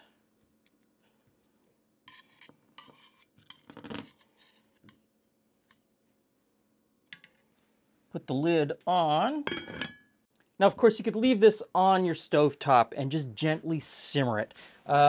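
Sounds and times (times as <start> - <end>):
utensil clinking on pot: 9.5 - 10.1.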